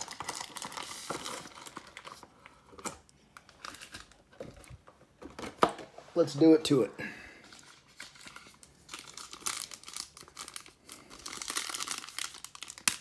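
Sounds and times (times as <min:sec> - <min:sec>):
foil crinkling: 0:00.0 - 0:02.3, 0:07.6 - 0:13.0.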